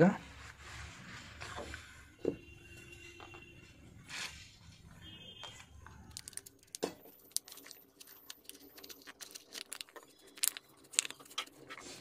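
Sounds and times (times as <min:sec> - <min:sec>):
plastic sheet clicking and crackling: 0:05.9 - 0:12.0.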